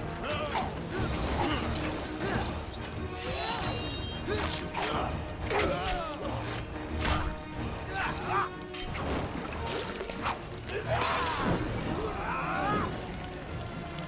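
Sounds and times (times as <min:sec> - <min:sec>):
action film music: 0:00.0 - 0:14.0
men screaming: 0:10.7 - 0:13.0.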